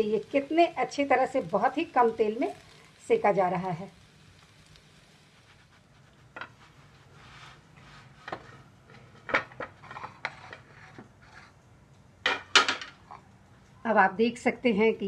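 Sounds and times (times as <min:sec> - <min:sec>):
soft scraping: 0:04.7 - 0:11.6.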